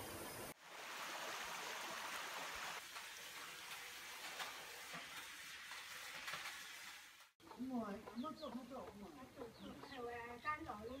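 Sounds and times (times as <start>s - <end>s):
stream running over stones: 0.0s - 7.2s.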